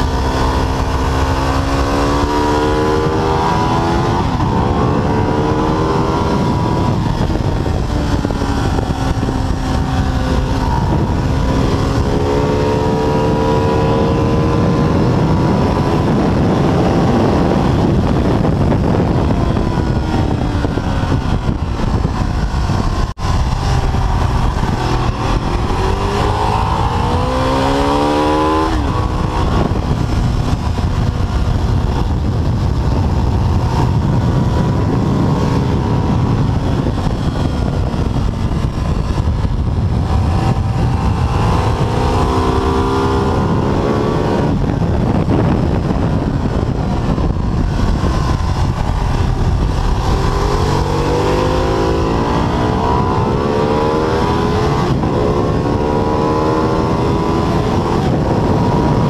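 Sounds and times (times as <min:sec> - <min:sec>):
motorcycle engine revving: 0:00.0 - 0:59.0
wind rushing on microphone: 0:00.0 - 0:59.0.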